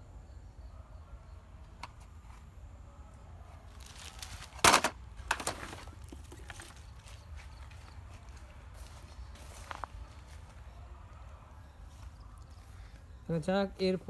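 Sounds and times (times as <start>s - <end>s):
toy car clattering into bucket: 4.5s - 6.3s.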